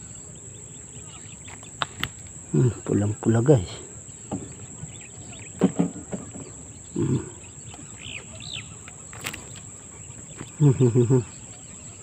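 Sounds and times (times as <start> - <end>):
bird chirps: 0.0 - 12.0
low voice sounds: 7.0 - 7.4.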